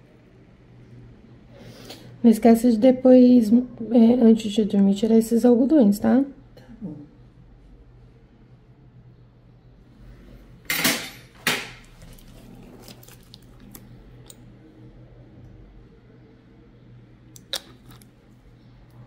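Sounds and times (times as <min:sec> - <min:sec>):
steady low hum: 0:00.0 - 0:19.0
metal instruments clattering: 0:10.7 - 0:11.9.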